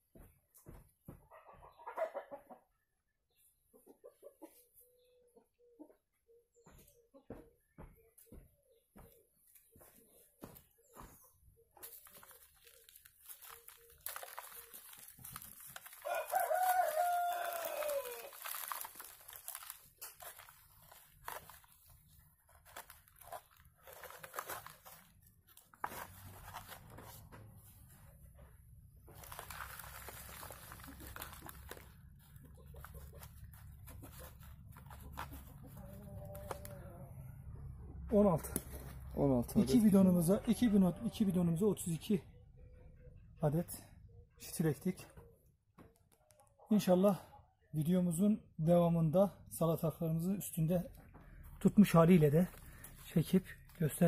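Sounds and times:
soil and plastic cup rustling: 11.8s - 36.8s, 51.3s - 54.0s
rooster crowing: 16.0s - 18.4s.

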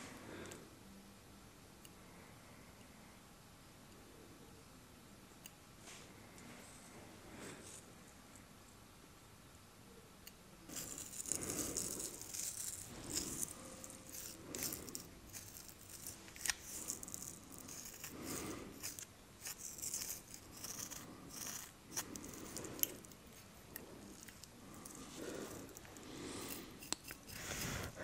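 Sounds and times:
fingers rubbing hair and beard: 10.7s - 28.0s.

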